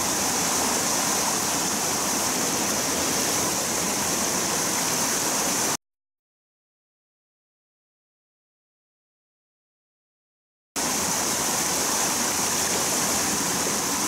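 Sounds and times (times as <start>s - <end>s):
stream pouring over waterfall: 0.0s - 5.8s, 10.8s - 14.0s.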